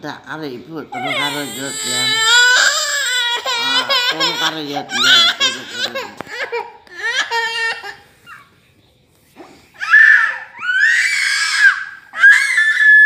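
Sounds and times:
baby crying: 0:01.0 - 0:08.4.

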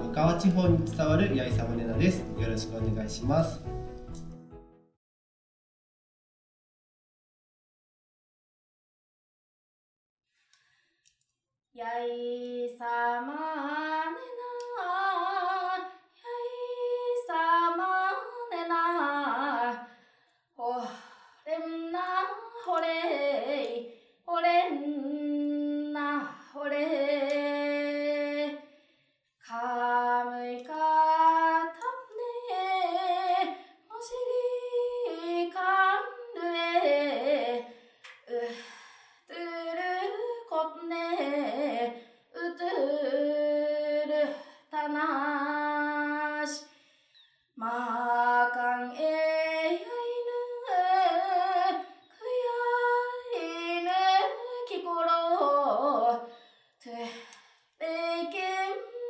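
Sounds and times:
woman singing unaccompanied: 0:11.8 - 0:19.8, 0:20.6 - 0:28.6, 0:29.5 - 0:37.7, 0:39.3 - 0:46.6, 0:47.6 - 0:57.2, 0:57.8 - 0:59.0.

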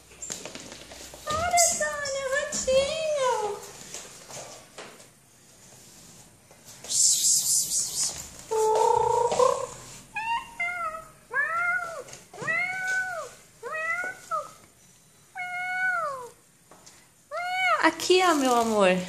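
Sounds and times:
cat meowing: 0:08.5 - 0:14.6, 0:15.3 - 0:16.4.

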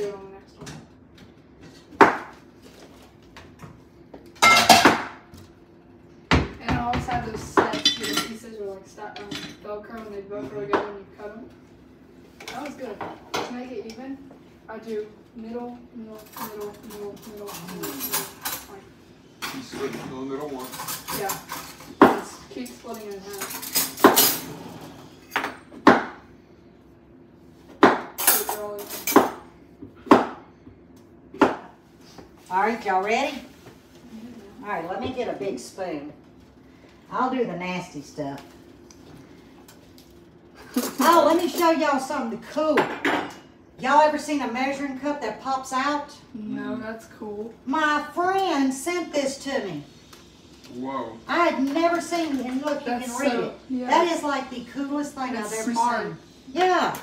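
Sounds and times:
metal kitchenware clattering: 0:04.4 - 0:05.1, 0:07.6 - 0:08.4, 0:19.4 - 0:24.6.

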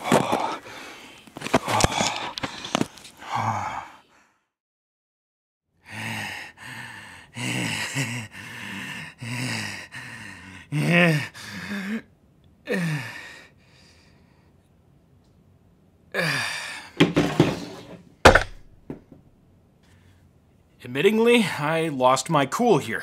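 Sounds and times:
man groaning and grunting: 0:03.2 - 0:04.0, 0:07.4 - 0:09.9, 0:10.6 - 0:12.1.

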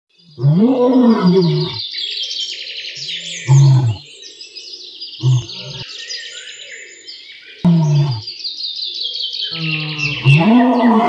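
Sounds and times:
small birds chirping: 0:00.1 - 0:11.0
lion grunts: 0:00.4 - 0:01.8, 0:03.4 - 0:04.0, 0:05.2 - 0:05.9, 0:07.7 - 0:08.3, 0:09.5 - 0:11.0
lion roaring: 0:00.4 - 0:01.8, 0:03.5 - 0:04.0, 0:05.2 - 0:05.8, 0:07.7 - 0:08.2, 0:09.5 - 0:11.0.

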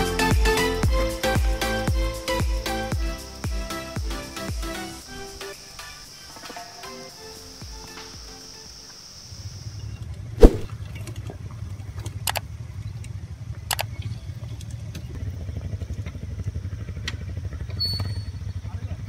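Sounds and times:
motorcycle engines idling: 0:11.5 - 0:19.0.

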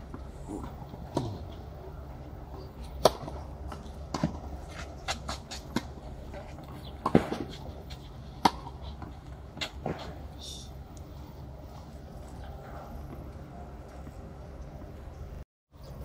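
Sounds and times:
racket hitting tennis ball: 0:02.9 - 0:10.2
tennis ball bouncing: 0:02.9 - 0:10.2.

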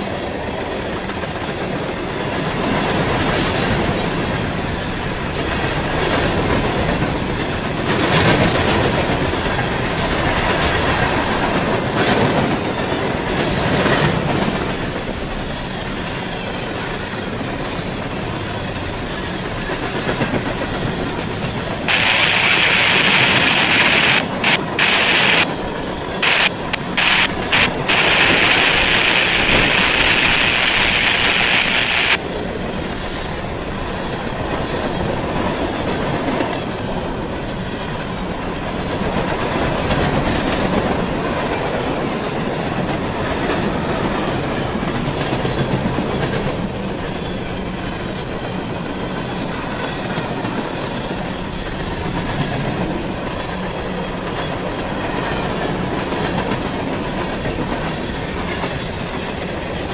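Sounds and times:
train wheels rolling on rails: 0:00.0 - 0:59.9
loud high hiss: 0:21.9 - 0:25.6, 0:26.2 - 0:32.2.

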